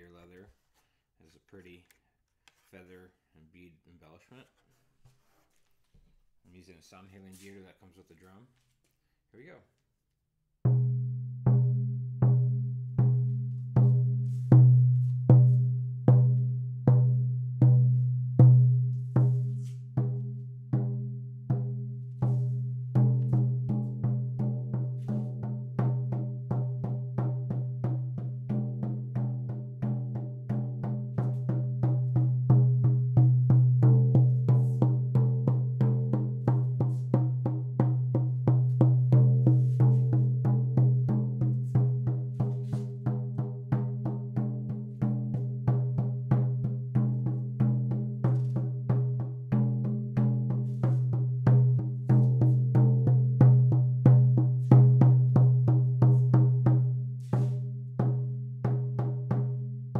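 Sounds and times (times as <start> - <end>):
frame drum booming: 18.4 - 56.6.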